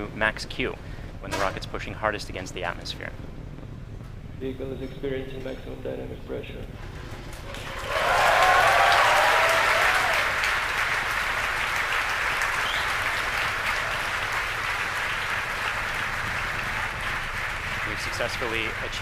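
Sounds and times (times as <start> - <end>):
crowd applause: 6.8 - 19.0
crowd cheering and whooping: 7.4 - 17.9.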